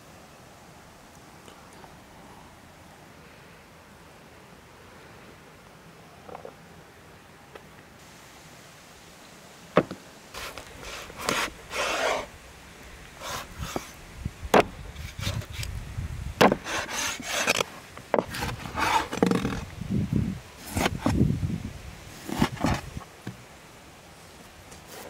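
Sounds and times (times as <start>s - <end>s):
cleaver knocking on wooden board: 16.4s - 16.6s.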